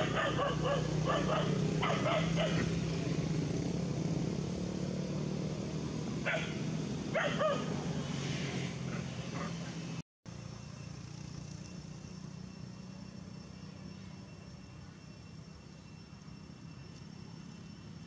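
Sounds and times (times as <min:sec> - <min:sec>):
dog barking: 0:00.0 - 0:02.7, 0:06.2 - 0:07.7.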